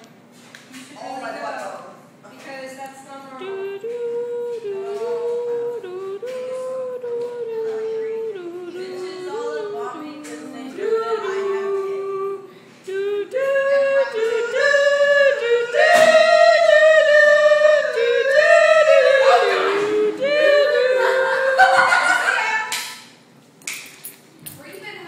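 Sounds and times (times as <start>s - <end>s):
unaccompanied singing voices: 3.0s - 22.7s.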